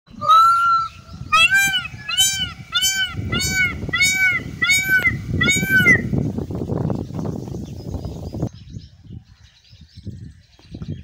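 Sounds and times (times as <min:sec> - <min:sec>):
peacock calling: 0:00.1 - 0:06.3.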